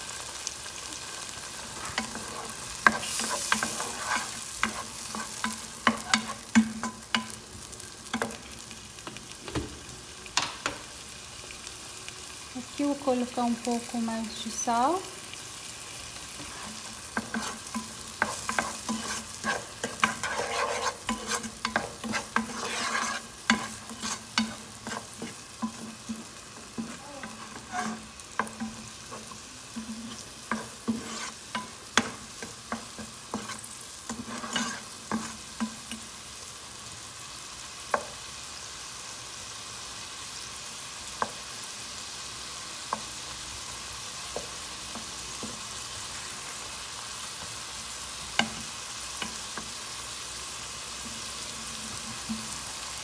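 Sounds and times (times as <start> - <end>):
food sizzling: 0.0 - 53.0
wooden spoon scraping pan: 1.6 - 7.3, 16.4 - 35.8.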